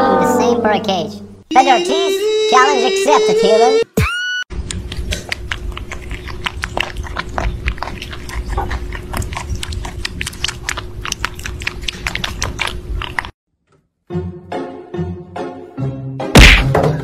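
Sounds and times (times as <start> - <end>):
kittens lapping milk: 4.6 - 13.4.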